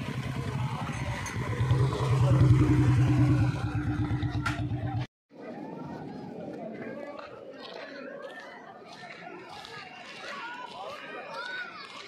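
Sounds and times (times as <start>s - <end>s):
motorcycle engine running: 0.0s - 5.1s.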